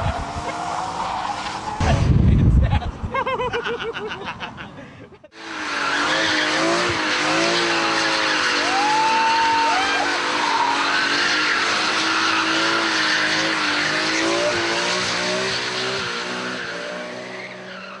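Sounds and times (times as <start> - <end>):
tyres squealing and skidding: 0.0 - 1.9, 5.4 - 18.0
car engine at high revs: 5.3 - 18.0.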